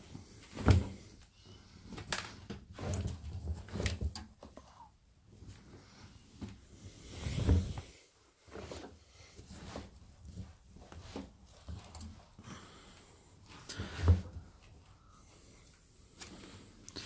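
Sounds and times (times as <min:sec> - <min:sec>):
fabric rubbing against washing machine drum: 0:07.1 - 0:08.9.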